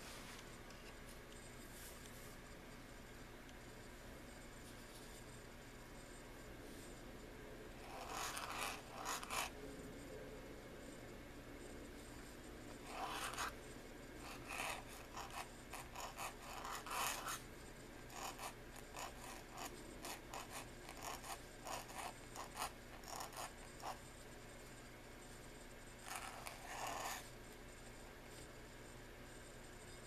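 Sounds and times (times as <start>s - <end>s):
pen nib scratching on paper: 7.8s - 9.6s, 12.7s - 13.6s, 14.2s - 17.5s, 18.1s - 24.1s, 26.0s - 27.3s.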